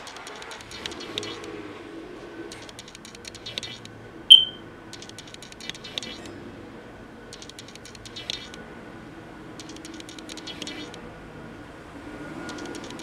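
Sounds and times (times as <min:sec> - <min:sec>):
short electronic beep: 0:04.3 - 0:04.6.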